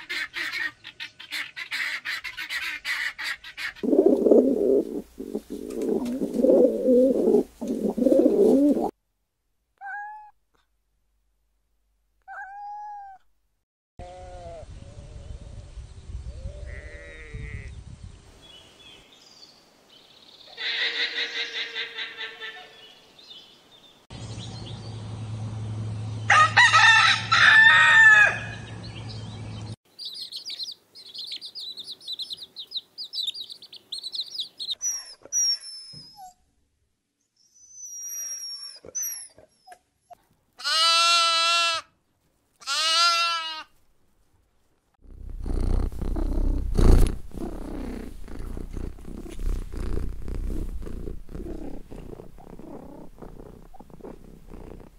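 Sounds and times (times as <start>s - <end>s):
cat purring: 3.8s - 8.9s, 45.0s - 54.9s
rooster crowing: 26.3s - 28.8s
small birds chirping: 28.6s - 36.3s, 45.2s - 54.9s.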